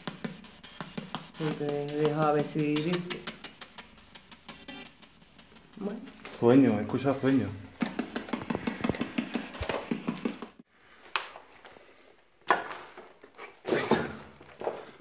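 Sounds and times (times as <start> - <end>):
quick clicking taps: 0.0 - 6.4, 7.7 - 10.6.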